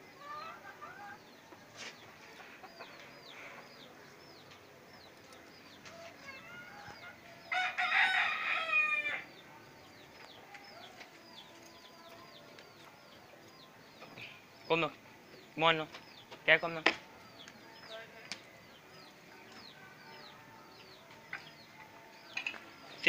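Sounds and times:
rooster crowing: 0:06.2 - 0:09.3.

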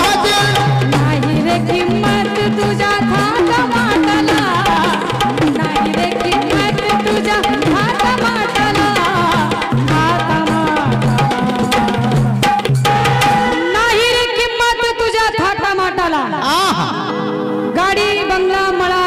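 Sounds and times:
tabla strokes: 0:00.0 - 0:14.2.

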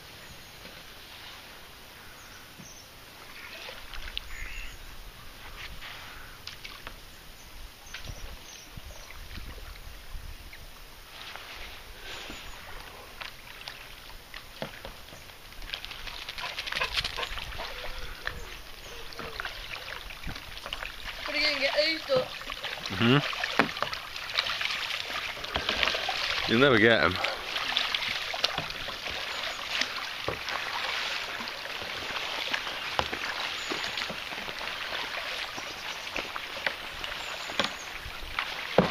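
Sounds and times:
kayak paddle splashing: 0:00.0 - 0:38.9
ducks quacking: 0:16.4 - 0:19.6.

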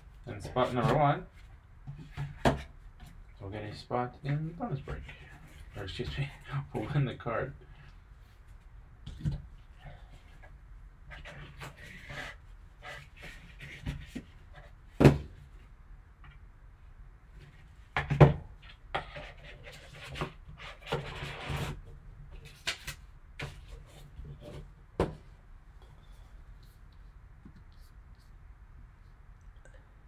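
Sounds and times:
box knocks and bumps: 0:15.0 - 0:15.3.

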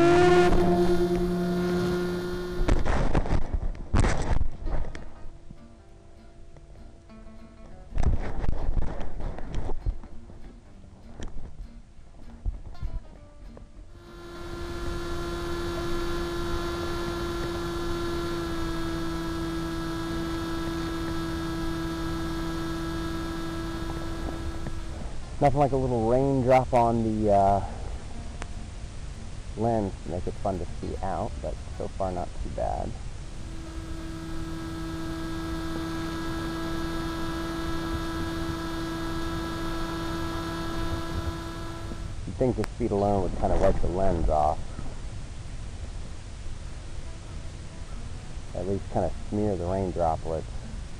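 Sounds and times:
airflow hiss: 0:00.0 - 0:05.2, 0:13.9 - 0:50.9
electric motor whine: 0:00.0 - 0:05.8, 0:13.9 - 0:28.2, 0:30.4 - 0:45.0.

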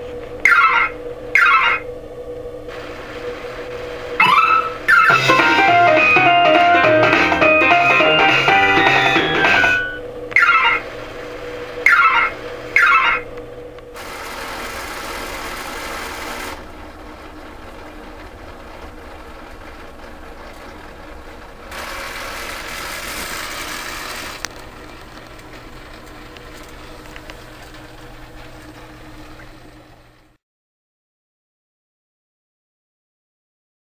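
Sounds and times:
pachinko machine whirring and rattling: 0:03.6 - 0:30.0.

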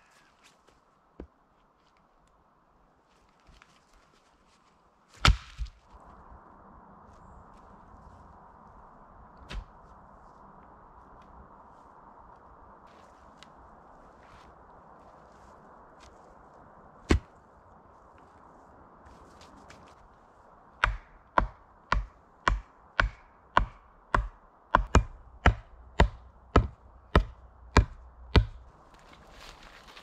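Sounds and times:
wood being chopped: 0:05.2 - 0:05.7, 0:17.1 - 0:17.3, 0:20.8 - 0:28.7.

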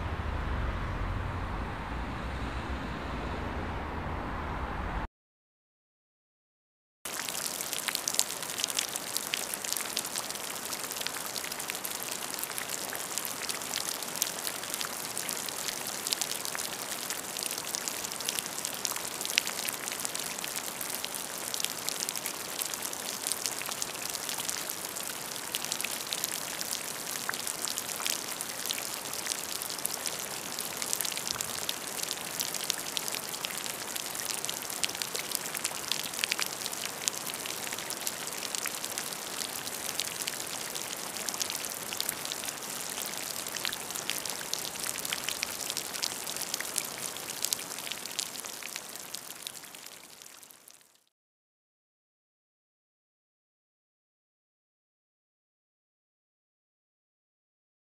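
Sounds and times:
raindrops hitting close by: 0:07.1 - 0:51.0
steady rain falling: 0:07.1 - 0:51.0.

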